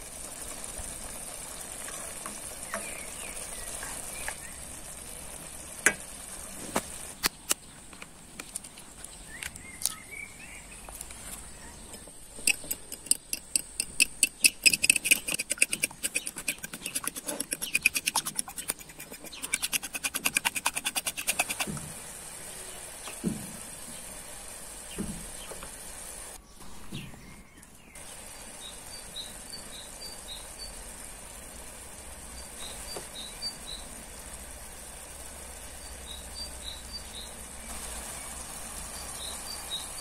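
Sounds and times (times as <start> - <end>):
fork beating eggs in a bowl: 12.4 - 21.8.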